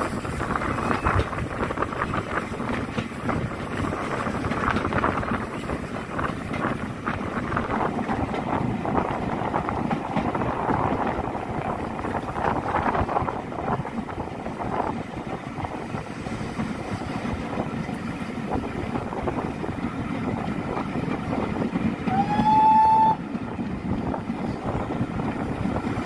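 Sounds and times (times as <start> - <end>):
steam train rumbling: 0.0 - 26.0
wind buffeting microphone: 0.0 - 26.0
steam locomotive whistle: 22.1 - 23.2.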